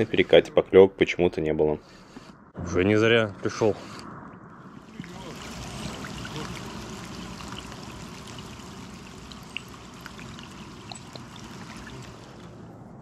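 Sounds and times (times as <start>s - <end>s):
light rain drips: 4.3s - 12.8s
flowing water: 4.7s - 12.8s.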